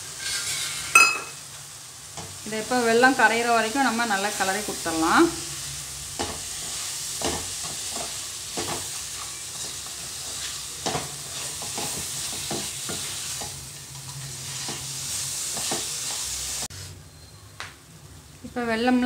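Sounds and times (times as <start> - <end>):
wooden spatula scraping a pan: 0.0 - 1.0, 6.2 - 16.9
mixture sizzling in ghee: 0.0 - 17.3.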